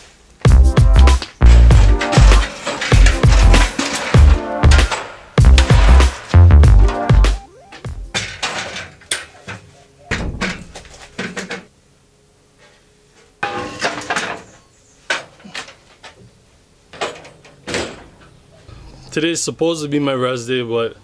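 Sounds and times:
footsteps: 0.0s - 11.7s
wooden ladder knocks: 1.4s - 11.7s.

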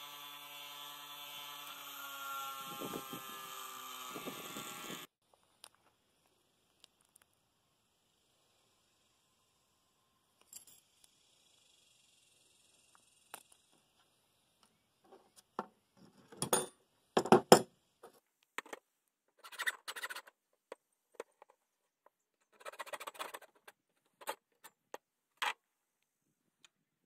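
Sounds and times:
hacksaw scraping rasps: 0.1s - 5.1s.

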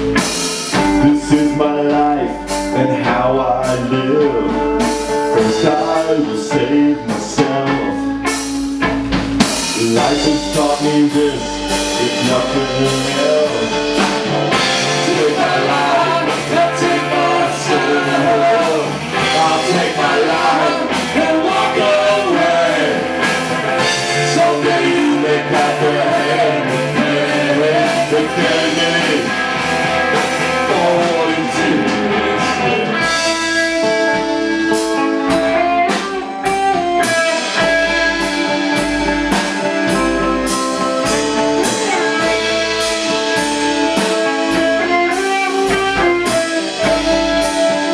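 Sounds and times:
electric guitar lead melody: 0.0s - 47.9s
rock band playing ballad: 0.0s - 47.9s.

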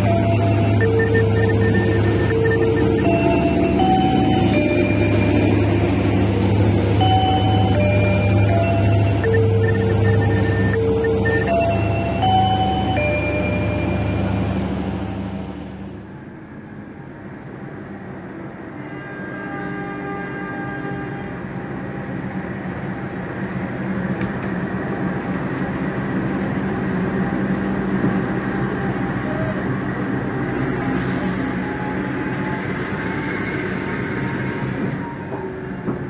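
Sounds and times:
thin high ringing tones: 0.0s - 14.7s
diesel locomotive engine drone: 0.0s - 36.0s.

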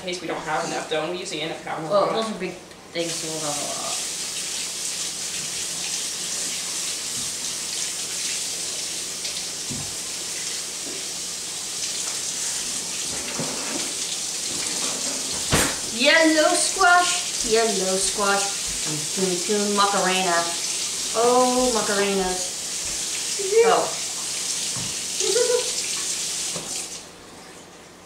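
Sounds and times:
tap running into a sink: 9.2s - 10.0s, 13.0s - 16.0s, 24.6s - 26.9s
sharp knock: 15.5s - 15.8s.

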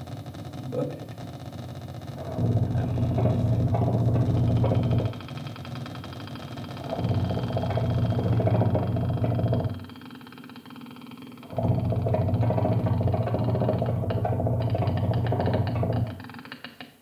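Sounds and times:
low trombone and electronic drone: 2.1s - 6.0s, 6.6s - 9.9s, 11.4s - 16.2s.

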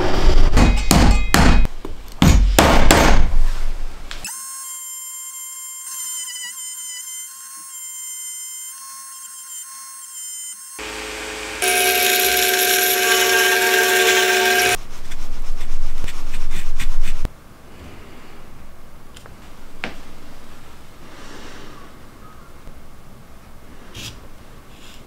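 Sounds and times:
router whining and cutting wood: 4.3s - 14.8s.

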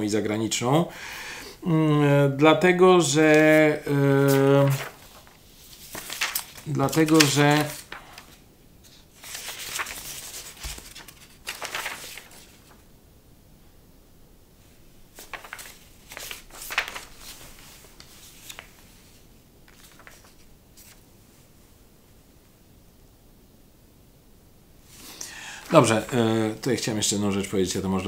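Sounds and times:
rustling handling noises: 3.0s - 12.8s, 15.1s - 21.5s, 24.8s - 27.5s.

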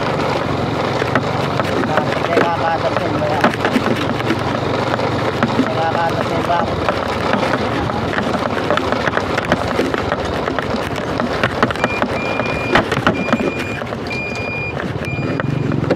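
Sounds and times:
car road and engine noise: 0.0s - 15.9s
high electronic beeper: 11.8s - 15.8s.

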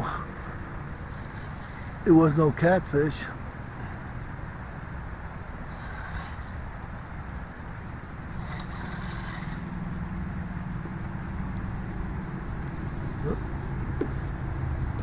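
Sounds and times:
motor humming: 1.1s - 2.6s, 5.6s - 7.3s, 8.3s - 9.8s.

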